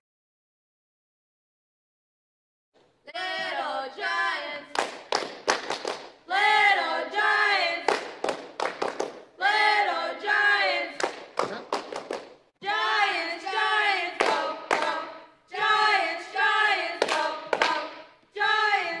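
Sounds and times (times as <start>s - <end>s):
cheerleaders chanting in unison: 3.1s - 5.0s, 5.9s - 11.3s, 12.6s - 19.0s.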